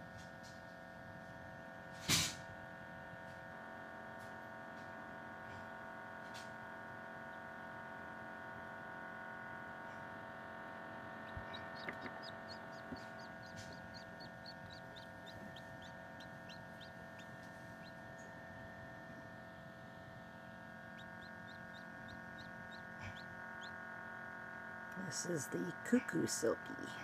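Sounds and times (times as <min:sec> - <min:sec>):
incubator hum: 0:04.6 - 0:27.0
chick peeping: 0:11.0 - 0:19.3, 0:20.8 - 0:23.8.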